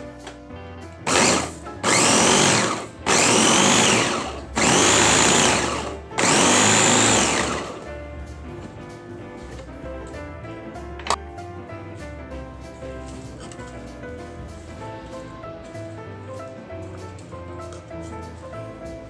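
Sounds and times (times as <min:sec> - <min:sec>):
electric meat chopper whining: 0:01.0 - 0:07.9.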